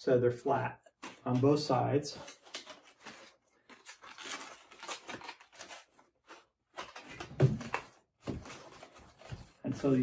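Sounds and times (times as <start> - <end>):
cardboard rustling and scraping: 2.2 - 10.0.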